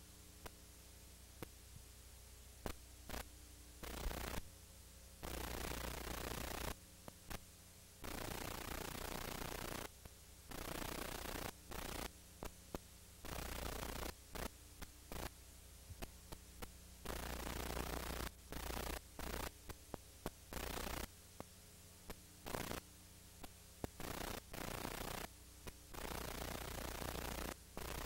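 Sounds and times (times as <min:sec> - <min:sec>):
recording hiss and static: 0:00.0 - 0:28.0
steady mains hum: 0:00.0 - 0:28.0
sharp clicks: 0:02.6 - 0:04.4, 0:08.0 - 0:15.3, 0:16.0 - 0:21.5, 0:22.1 - 0:22.8.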